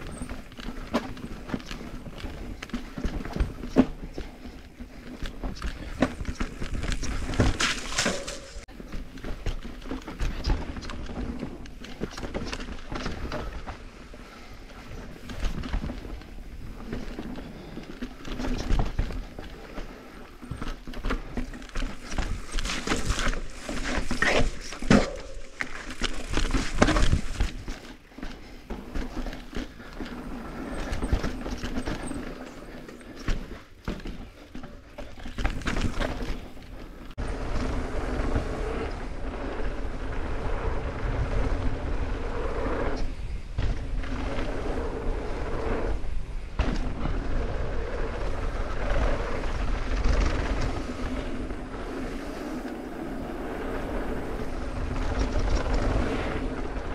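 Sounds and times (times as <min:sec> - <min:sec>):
wind over microphone: 0:00.0 - 0:33.6, 0:34.2 - 0:56.9
tire noise on dirt: 0:00.0 - 0:56.9
bike clattering over rocks: 0:05.0 - 0:13.6, 0:20.4 - 0:36.7.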